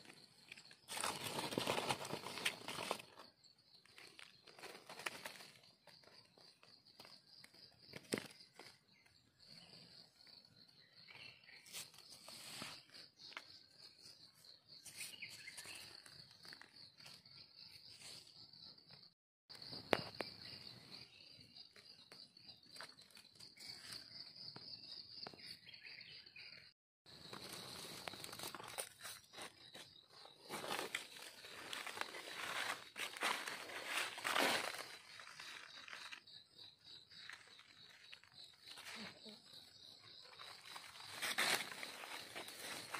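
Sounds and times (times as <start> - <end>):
rustling of dry leaves: 0.0 - 6.6, 27.1 - 36.4, 40.3 - 42.9
insects chirring: 0.0 - 26.2, 27.1 - 42.9.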